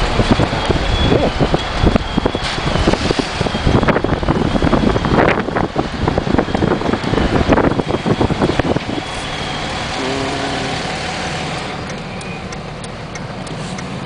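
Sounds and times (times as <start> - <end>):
wind buffeting microphone: 0.0 - 10.0
car running noise inside cabin: 0.0 - 14.0.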